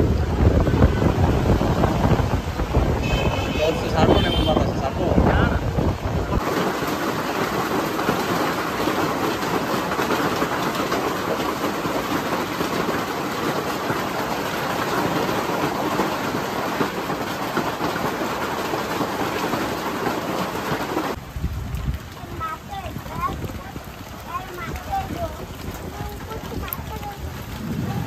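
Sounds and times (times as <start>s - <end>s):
hail clattering on hard surfaces: 0.2s - 28.0s.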